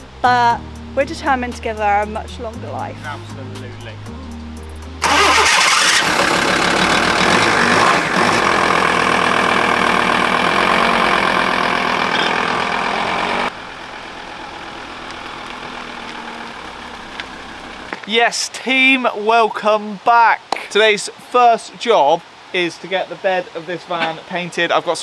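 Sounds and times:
van engine starting and running: 4.3s - 18.0s.

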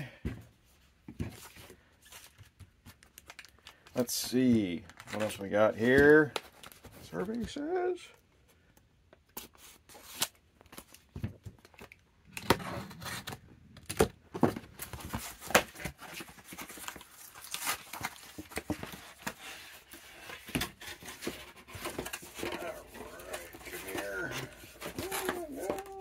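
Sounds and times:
cardboard tearing and crackling: 12.4s - 26.0s.

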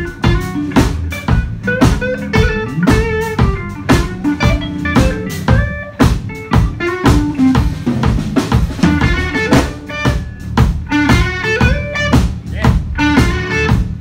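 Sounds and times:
bass guitar: 0.0s - 14.0s
drum kit steady beat: 0.0s - 14.0s
electric guitar lead lines: 0.0s - 14.0s.

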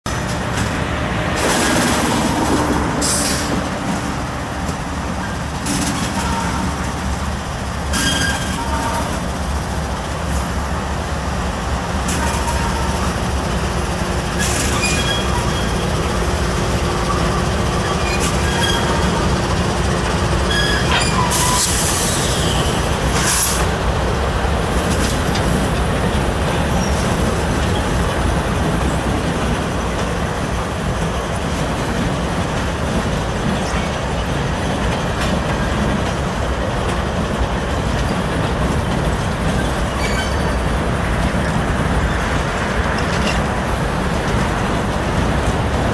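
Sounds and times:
diesel locomotive engines rumbling: 0.0s - 45.9s
train wheels on rails: 0.0s - 45.9s
high-pitched wheel squeals: 7.9s - 9.2s, 14.4s - 16.0s, 17.0s - 19.4s, 20.4s - 23.6s, 39.6s - 40.7s.

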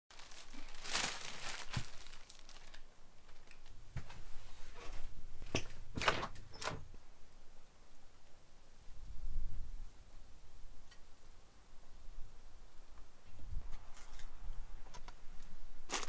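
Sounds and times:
plastic bag rustling: 0.1s - 4.2s
door unlatching and opening: 5.4s - 6.9s.

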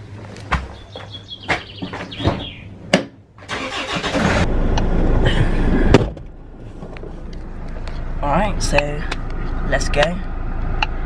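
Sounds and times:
car engine starting and running: 2.4s - 11.0s.

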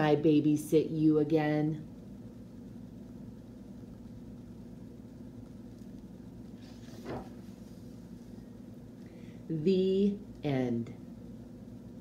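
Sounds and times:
low background hum: 0.0s - 12.0s
book rustling: 6.5s - 8.0s.

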